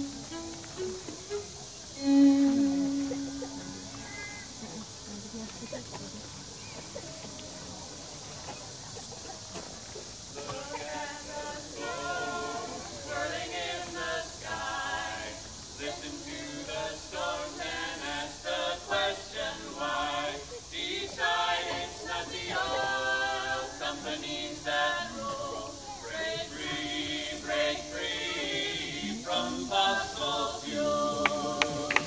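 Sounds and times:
group singing a cappella: 10.3s - 32.0s.

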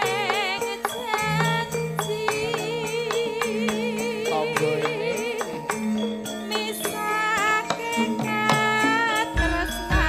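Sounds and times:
metallophone tones: 0.0s - 10.0s
woman singing with vibrato: 0.0s - 10.0s
hand drum strokes: 6.5s - 10.0s.

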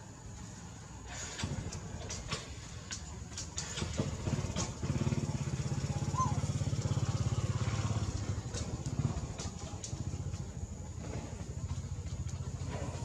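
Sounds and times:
small engine chugging: 1.1s - 13.0s.

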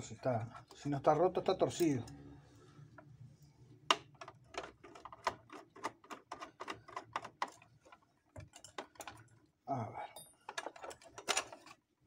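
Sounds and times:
small clicks and taps of metal parts: 3.9s - 9.4s, 10.2s - 11.8s.

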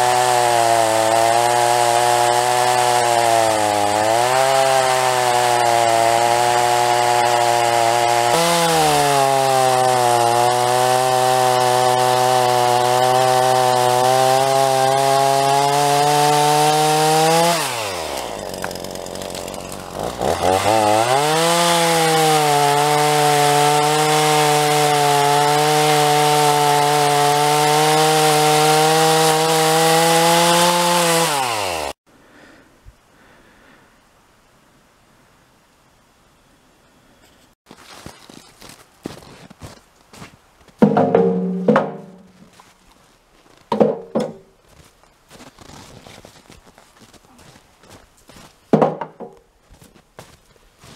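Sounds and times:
chainsaw cutting branches: 0.0s - 32.0s, 40.8s - 42.7s.

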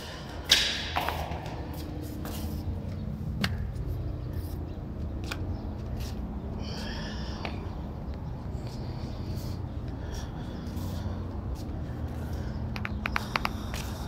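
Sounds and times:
footsteps on tiles: 1.0s - 4.6s.

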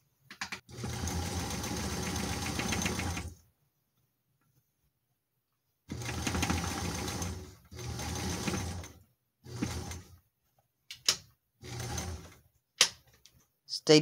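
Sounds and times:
electric sewing machine running: 0.7s - 3.4s, 5.9s - 10.1s, 11.6s - 12.4s.

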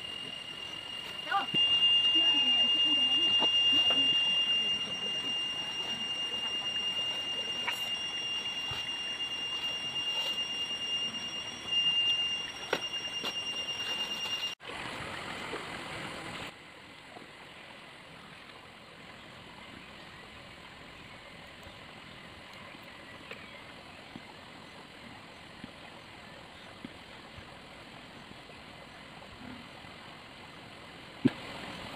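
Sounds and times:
high-pitched insect drone: 0.0s - 14.6s
outdoor background: 0.0s - 31.9s.

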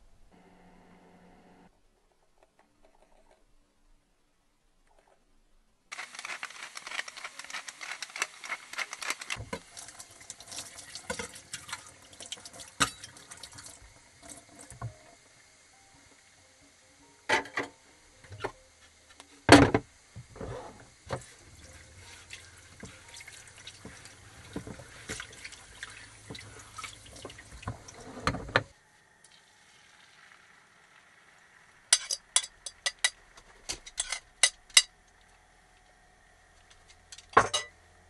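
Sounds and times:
tap water running into sink: 9.4s - 15.2s, 21.0s - 28.7s
utensil clinking on metal: 31.9s - 33.2s.

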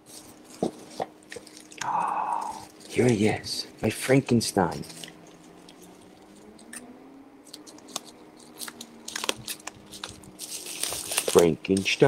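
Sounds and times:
plastic crinkling: 7.4s - 12.0s
scissors snipping plastic bag: 7.4s - 12.0s.

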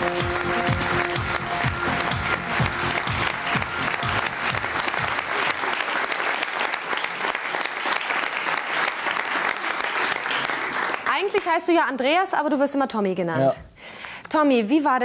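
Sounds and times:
entrance music with low beat: 0.0s - 5.4s
audience applauding: 0.0s - 11.8s.

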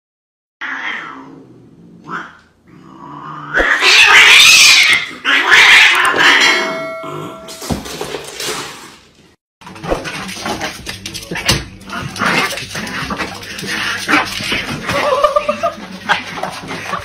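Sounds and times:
cats yowling and screeching: 3.5s - 6.6s.

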